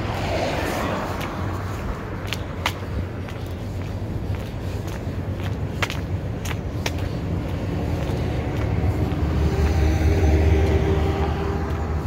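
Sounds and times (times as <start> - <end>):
vehicle passing: 0.0 - 12.0
footsteps on concrete: 0.6 - 12.0.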